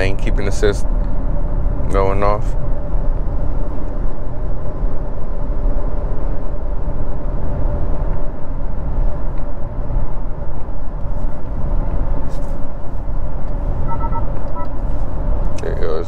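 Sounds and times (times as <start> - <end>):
faint engine hum: 0.0 - 16.0
tyre and wind road noise: 0.0 - 16.0.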